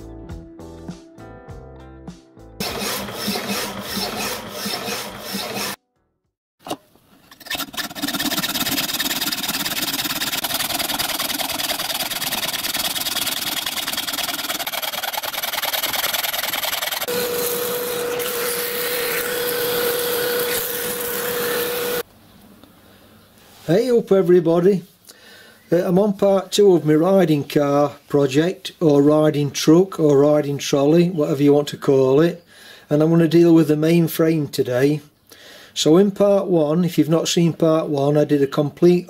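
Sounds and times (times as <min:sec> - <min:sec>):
background music: 0:00.0 - 0:02.6
hacksaw rasping through metal: 0:02.6 - 0:05.8, 0:07.4 - 0:22.0.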